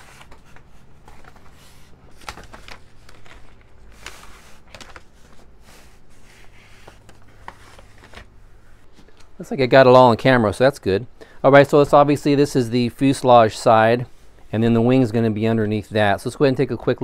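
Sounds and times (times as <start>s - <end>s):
paper sheets rustling: 0.0s - 9.0s.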